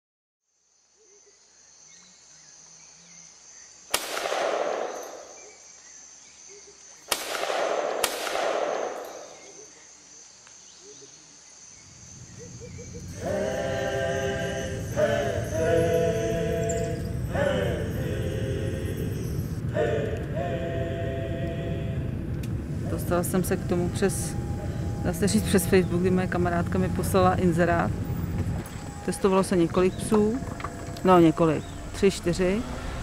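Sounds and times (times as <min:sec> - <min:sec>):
high insect drone: 0:00.4 - 0:07.2, 0:07.8 - 0:33.0
gunshots: 0:03.9 - 0:05.3, 0:07.1 - 0:09.4
music with singing voices: 0:13.1 - 0:22.2.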